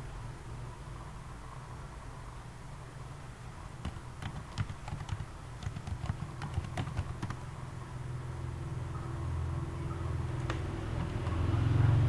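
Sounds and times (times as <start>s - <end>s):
steady low hum: 0.0s - 12.0s
keyboard key clicks: 3.8s - 7.4s.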